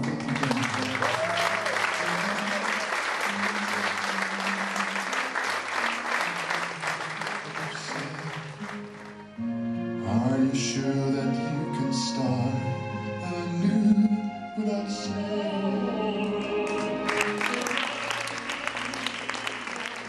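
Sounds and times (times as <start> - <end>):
audience applauding: 0.0 - 9.4, 16.6 - 20.0
music: 0.0 - 20.0
music with singing: 0.0 - 20.0.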